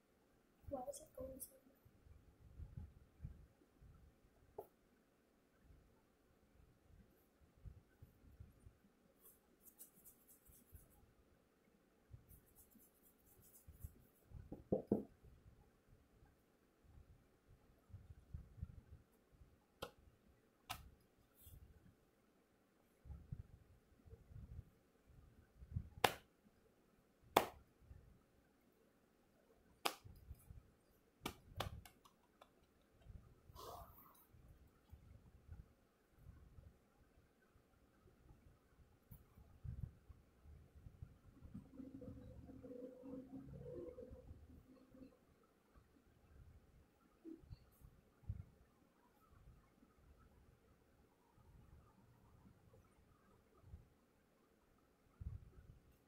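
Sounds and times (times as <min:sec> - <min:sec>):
hands rustling through hair: 0:09.2 - 0:11.0.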